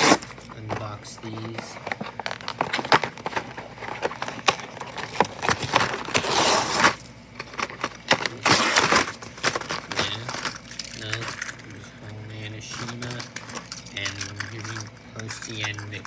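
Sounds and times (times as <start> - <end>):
cardboard box tearing open: 0.0 - 0.3, 4.1 - 7.0, 8.2 - 10.2
packaging clicks and knocks: 0.0 - 11.7, 12.7 - 16.0.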